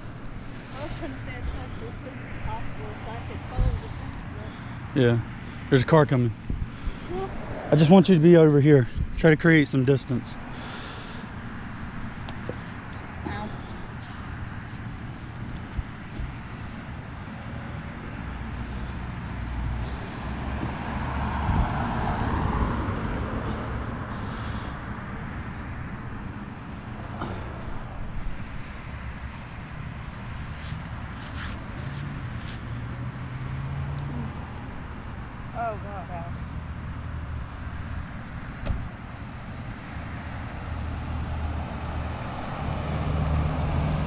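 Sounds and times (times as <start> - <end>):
car engine and tyre noise: 0.0 - 44.0
car passing close by: 7.1 - 8.8, 18.1 - 26.0, 30.6 - 34.6, 40.2 - 44.0.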